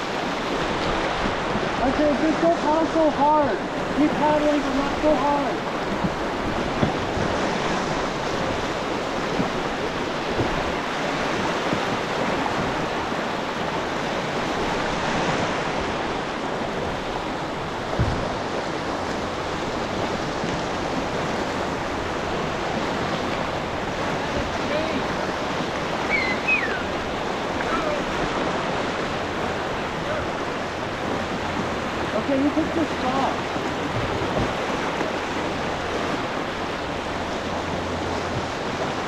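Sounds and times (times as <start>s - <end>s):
whitewater rushing: 0.0s - 39.0s
dull thump on canoe: 5.6s - 13.1s, 17.8s - 19.2s, 23.3s - 25.9s, 33.4s - 36.3s.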